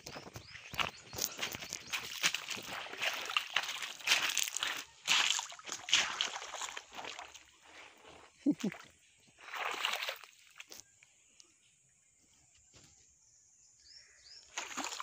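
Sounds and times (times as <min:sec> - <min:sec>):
mud scraping and sloshing: 0:00.0 - 0:10.8, 0:14.5 - 0:15.0
short voice: 0:08.4 - 0:08.8.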